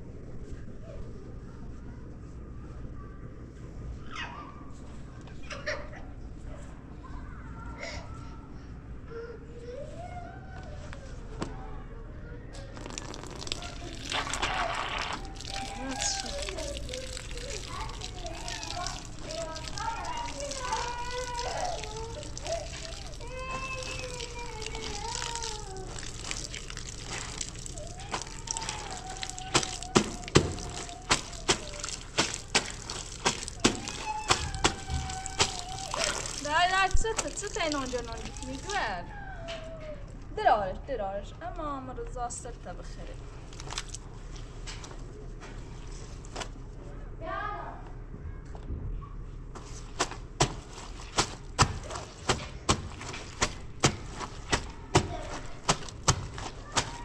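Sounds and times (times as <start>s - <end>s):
water running from tap: 12.6s - 39.0s
wet cloth slapping and squelching: 12.6s - 39.0s, 43.5s - 45.0s, 45.8s - 46.6s, 49.6s - 57.0s.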